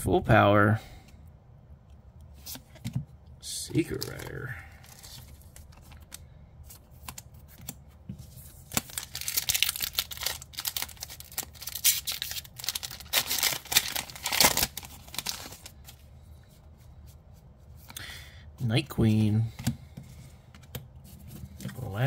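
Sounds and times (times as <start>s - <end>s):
foil wrapper crinkling and tearing: 8.7s - 15.8s.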